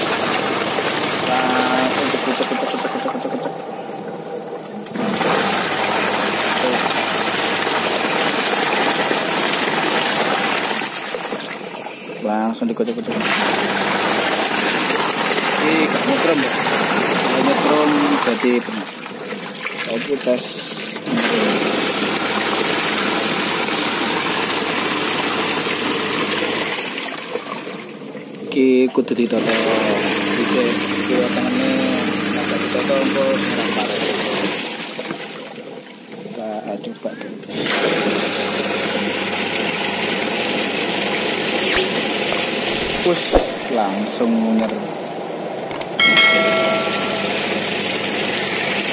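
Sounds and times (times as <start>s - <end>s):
water rushing: 0.0s - 11.8s, 41.3s - 48.9s
washing machine churning water: 0.0s - 48.9s.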